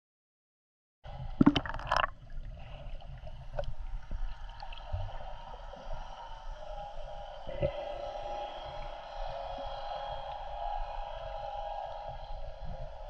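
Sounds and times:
underwater rumble of moving water: 1.1s - 13.0s
water gurgling: 1.2s - 9.0s.

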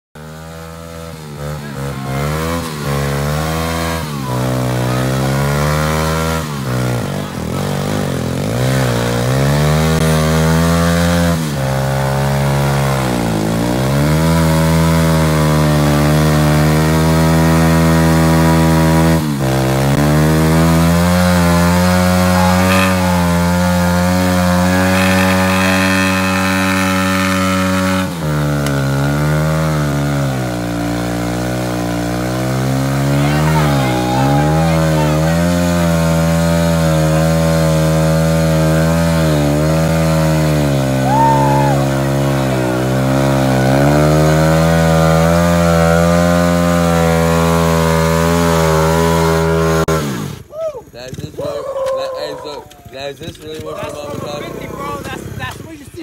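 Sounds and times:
pit bike engine revving: 0.2s - 51.5s, 52.2s - 56.0s
tyre spinning on pavement: 21.3s - 28.8s.

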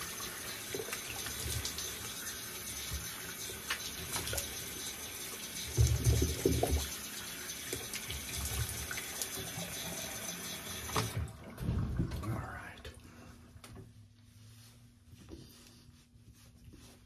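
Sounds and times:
tap running into sink: 5.6s - 7.0s, 10.7s - 12.2s.

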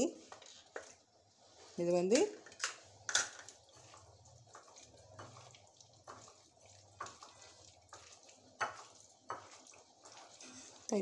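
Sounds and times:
hand squelching wet curd: 3.4s - 11.0s.

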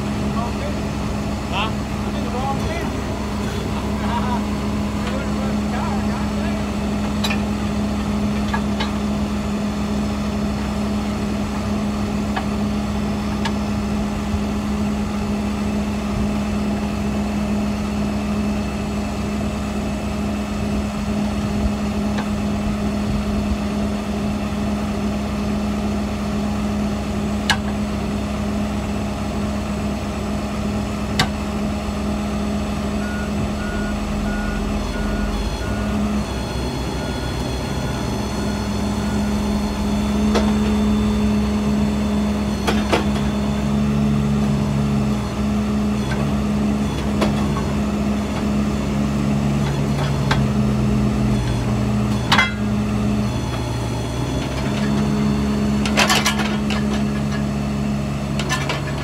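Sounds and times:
truck engine running: 0.0s - 59.0s
short beeps: 33.0s - 35.9s.

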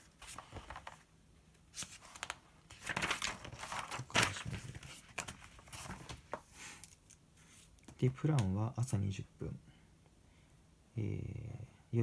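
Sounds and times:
paper rustling: 0.0s - 1.1s, 1.7s - 8.0s.

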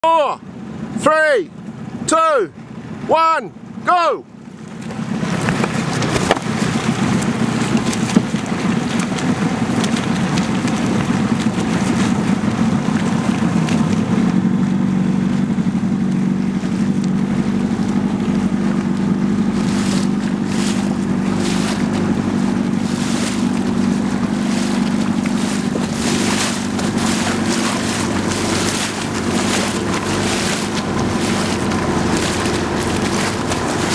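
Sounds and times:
motorboat engine running: 0.0s - 33.9s
water rushing past hull: 0.0s - 33.9s
wind on microphone: 16.4s - 33.9s.

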